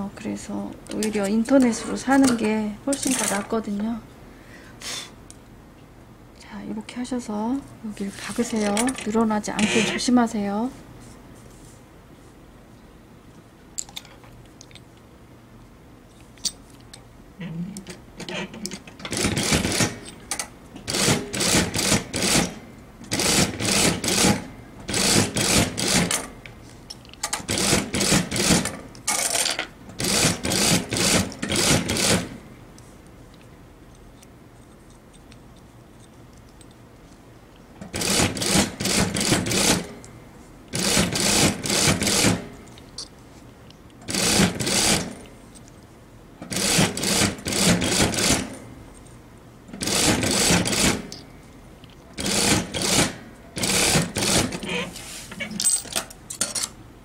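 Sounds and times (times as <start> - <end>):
sewing machine stitching: 23.1 - 26.2, 30.0 - 32.3, 37.9 - 39.8, 40.8 - 42.4, 44.1 - 45.1, 46.5 - 48.6, 49.8 - 51.0, 52.2 - 54.7.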